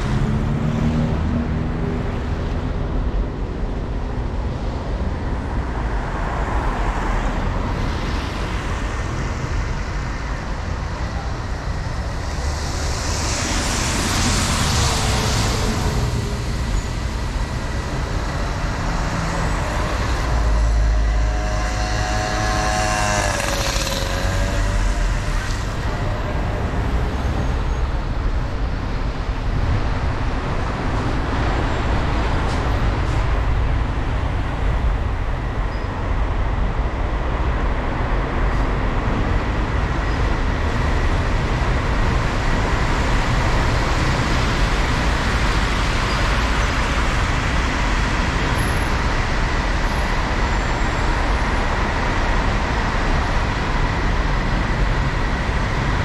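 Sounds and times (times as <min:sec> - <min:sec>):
car engine and road rumble: 0:00.0 - 0:56.0
faint high whine: 0:16.8 - 0:27.9.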